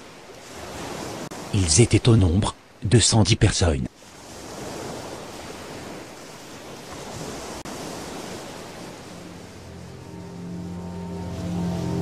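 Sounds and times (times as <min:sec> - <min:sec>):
sea waves washing: 0:04.0 - 0:12.0.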